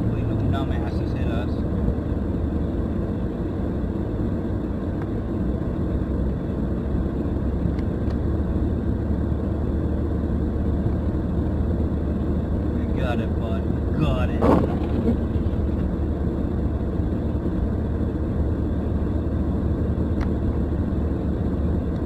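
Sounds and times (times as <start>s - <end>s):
car engine and tyres rumbling: 0.0s - 22.0s.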